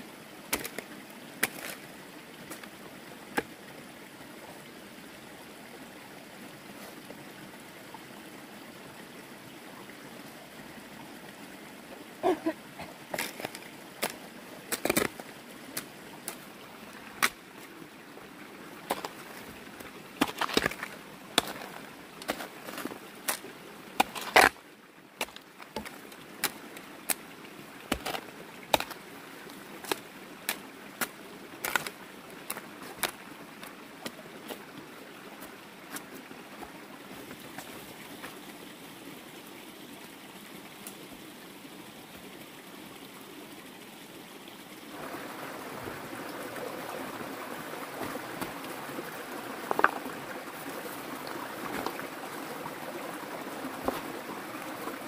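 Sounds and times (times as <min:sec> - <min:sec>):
digging tool striking ground: 0:20.2 - 0:22.5, 0:27.9 - 0:29.0.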